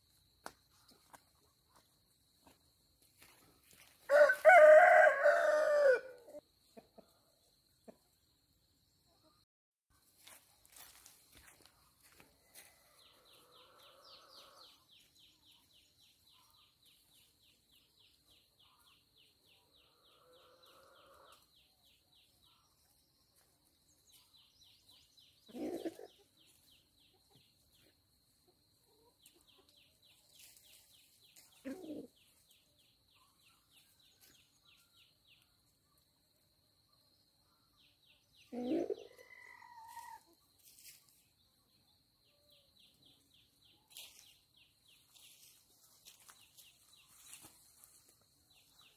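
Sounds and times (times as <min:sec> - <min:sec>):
chickens clucking: 0:25.5 - 0:32.4, 0:38.4 - 0:40.9.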